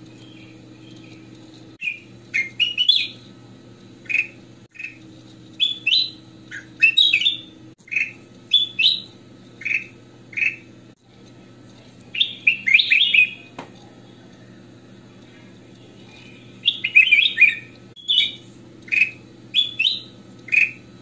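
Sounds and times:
faint steady hum: 0.0s - 21.0s
bird singing chirps and whistles: 1.8s - 3.3s, 4.1s - 5.0s, 5.6s - 10.7s, 12.2s - 13.5s, 16.0s - 20.9s.

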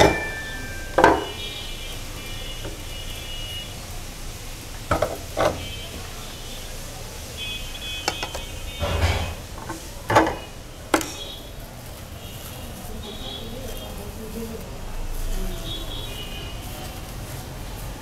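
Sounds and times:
metal parts clinking and knocking: 0.0s - 1.5s.

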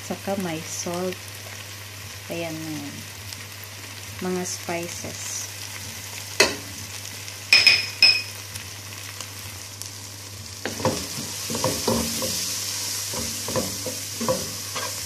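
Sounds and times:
food sizzling in frying pan: 0.0s - 15.0s
wooden spatula scraping and stirring: 10.7s - 15.0s.

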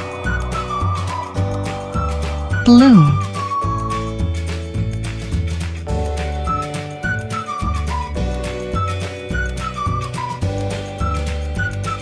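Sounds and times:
bass line: 2.7s - 3.2s.

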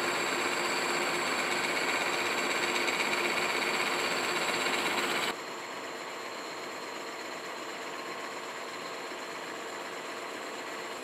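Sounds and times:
milling machine cutting metal: 0.0s - 5.3s.

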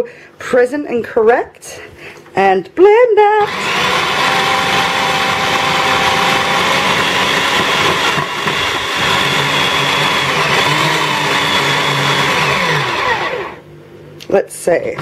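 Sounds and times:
food processor motor whining: 3.4s - 13.6s.

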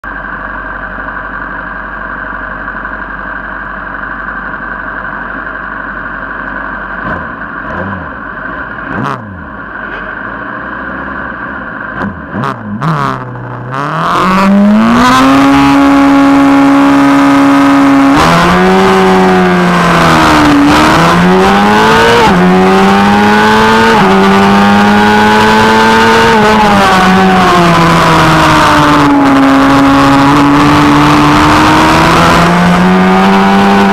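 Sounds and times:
motorcycle engine revving: 6.8s - 33.9s.

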